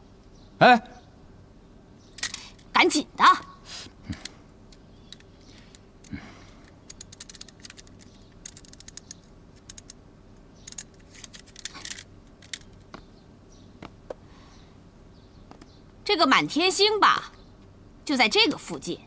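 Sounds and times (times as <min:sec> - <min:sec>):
handcuffs ratcheting clicks: 0:02.2 - 0:02.7, 0:04.2 - 0:10.0, 0:10.6 - 0:12.8.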